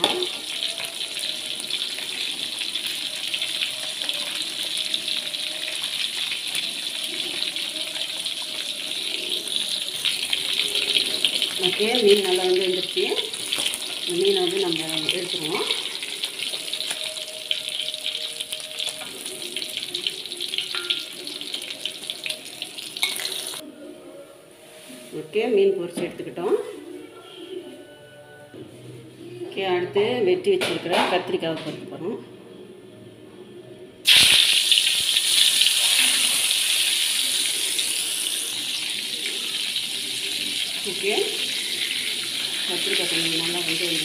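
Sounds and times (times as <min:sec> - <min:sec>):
fish frying in hot oil: 0:00.0 - 0:23.6, 0:34.0 - 0:44.0.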